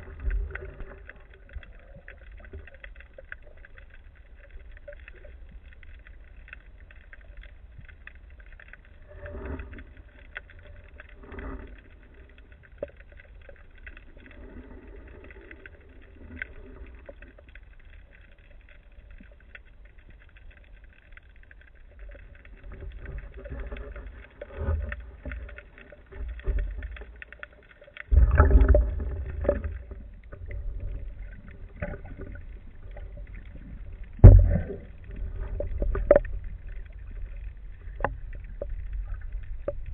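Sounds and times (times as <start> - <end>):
low water rushes: 0.0 - 12.6, 21.8 - 39.9
underwater water rumble: 0.0 - 39.9.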